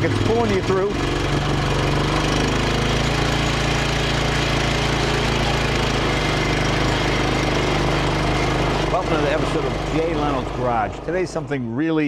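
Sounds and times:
motorcycle engine running under load: 0.0 - 11.6.

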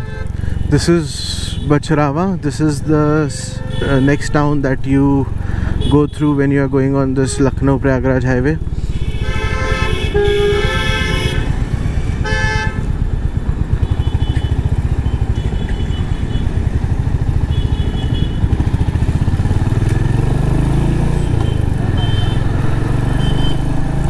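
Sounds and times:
vehicle horns honking: 0.0 - 0.8, 3.4 - 4.6, 5.6 - 8.1, 8.8 - 13.0, 13.8 - 16.7, 17.3 - 19.0, 21.2 - 23.7
motorcycle engine at low revs: 0.3 - 24.0.

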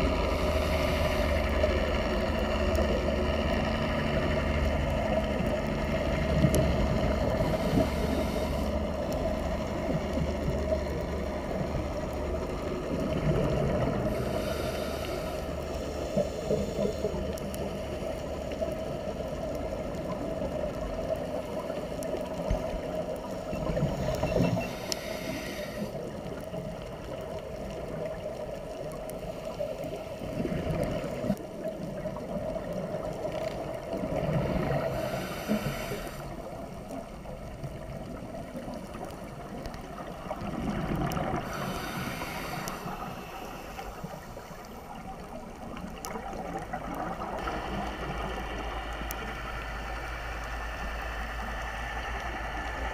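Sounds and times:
exhaled bubbles gurgling: 0.0 - 52.9
steady hum: 0.0 - 52.9
regulator hissing: 24.3 - 25.9.

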